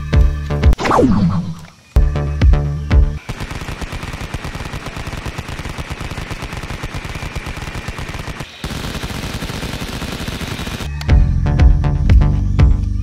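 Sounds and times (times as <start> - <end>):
toy blaster rapid firing: 3.2 - 11.0.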